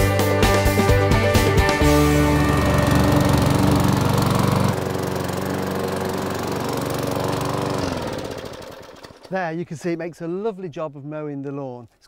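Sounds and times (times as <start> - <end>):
lawn mower engine running: 0.0 - 9.5.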